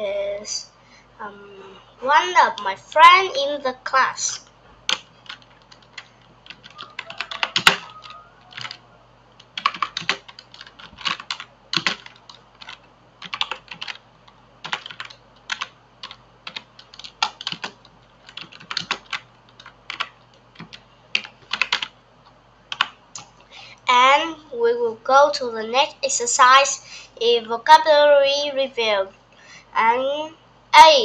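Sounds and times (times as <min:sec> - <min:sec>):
typing on computer keyboard: 0:04.9 - 0:08.8, 0:09.5 - 0:14.0, 0:14.6 - 0:21.9, 0:22.7 - 0:22.9.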